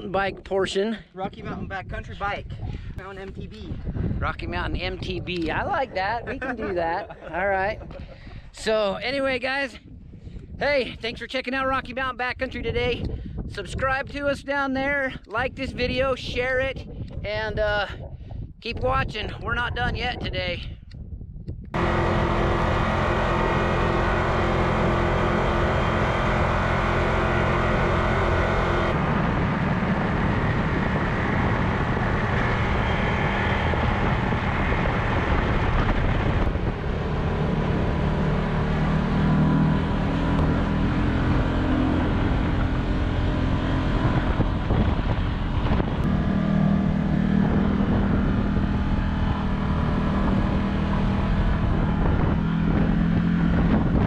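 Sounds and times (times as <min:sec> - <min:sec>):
utility vehicle engine running: 0:21.8 - 0:54.0.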